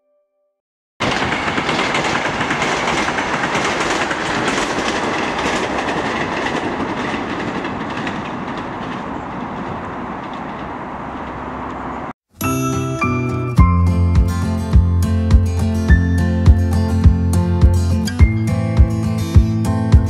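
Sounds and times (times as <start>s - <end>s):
train wheels rushing on rails: 1.0s - 12.1s.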